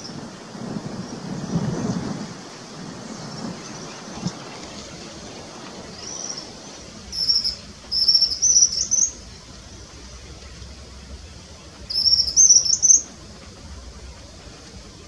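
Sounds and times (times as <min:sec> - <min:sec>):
bird twittering: 0:05.9 - 0:09.2, 0:11.9 - 0:13.1.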